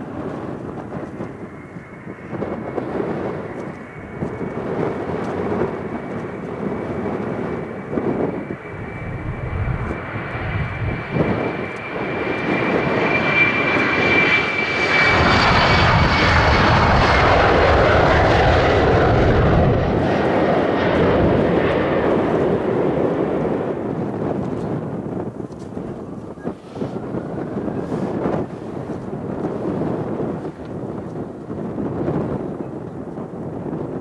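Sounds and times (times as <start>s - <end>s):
jet engines spooling up: 0.3s - 24.9s.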